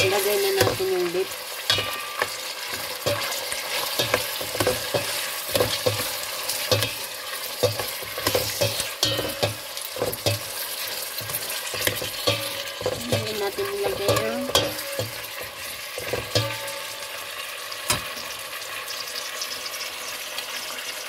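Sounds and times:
beef sizzling in a pot: 0.0s - 21.0s
spoon scraping and knocking pot: 1.6s - 17.0s.

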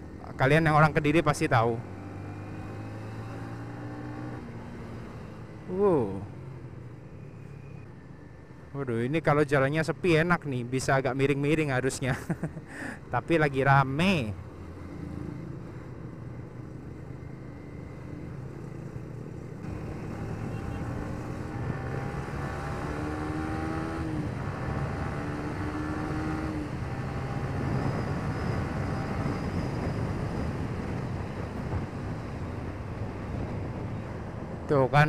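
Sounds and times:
motorcycle engine accelerating: 19.6s - 32.3s
wind rush: 27.6s - 34.7s.

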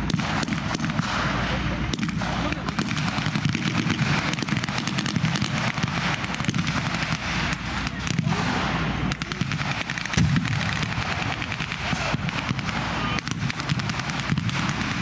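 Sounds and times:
rapid gunfire: 0.0s - 15.0s.

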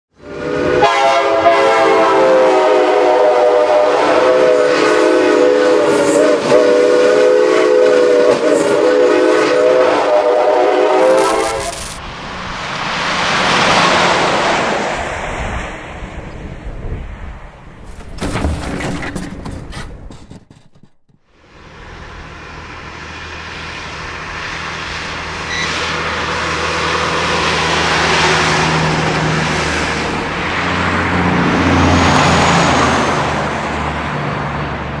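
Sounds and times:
rushing noise: 0.2s - 18.7s
train air horn chord: 0.3s - 12.0s, 25.4s - 28.6s.

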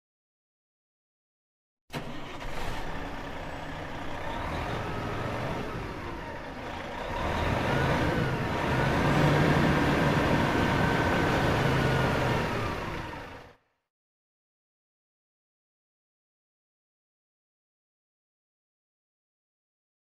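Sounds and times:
van engine starting and running: 1.9s - 13.6s.

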